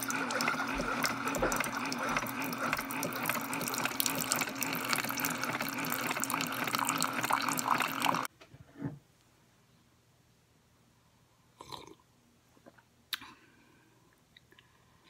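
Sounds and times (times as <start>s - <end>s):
coffee maker pump humming: 0.0s - 8.3s
coffee pouring into mug: 0.0s - 8.3s.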